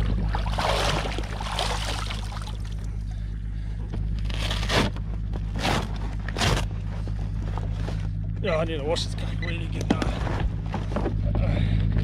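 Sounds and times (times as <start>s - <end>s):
seawater splashing and sloshing: 0.0s - 3.0s.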